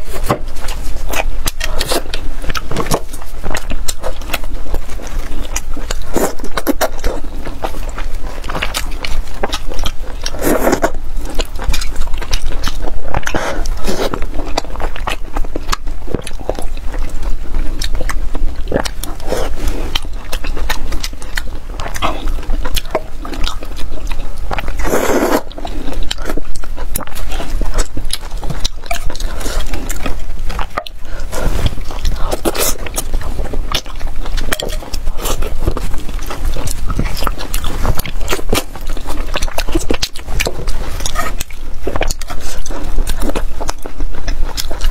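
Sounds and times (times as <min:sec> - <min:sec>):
wet chewing and lip smacks: 0:00.0 - 0:44.9
noodle slurp: 0:10.2 - 0:11.0, 0:24.6 - 0:26.6.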